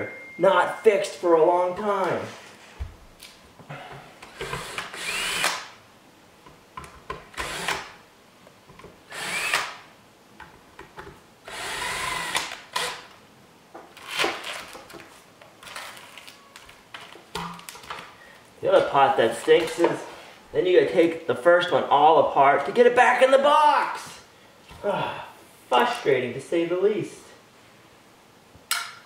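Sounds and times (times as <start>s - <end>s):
cordless drill whining: 4.4s - 5.6s, 7.4s - 7.9s, 9.1s - 9.8s, 11.5s - 13.1s.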